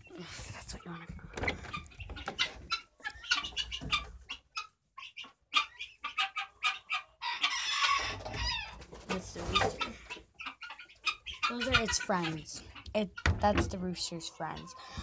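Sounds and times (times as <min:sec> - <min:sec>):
guineafowl harsh calls: 0:02.0 - 0:08.8, 0:09.4 - 0:13.3, 0:14.5 - 0:15.0.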